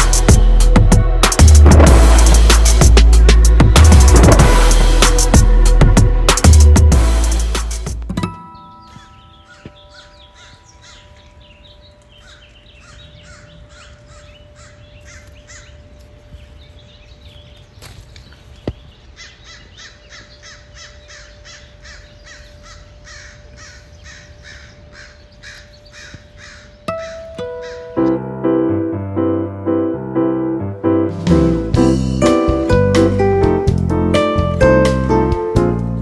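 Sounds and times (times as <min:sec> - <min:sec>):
bird calling harshly: 0:08.8 - 0:15.9, 0:18.9 - 0:28.2.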